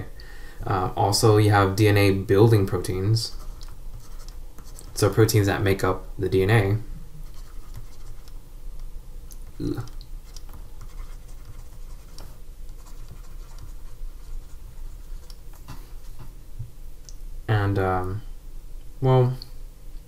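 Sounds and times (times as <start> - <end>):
stylus scratching on tablet: 2.7 - 5.4, 7.2 - 8.4, 9.4 - 16.3.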